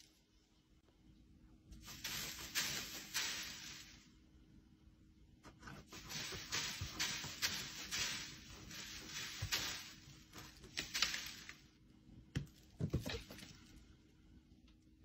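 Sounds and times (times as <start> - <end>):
cat scratching in litter: 1.8 - 4.0, 5.5 - 11.6.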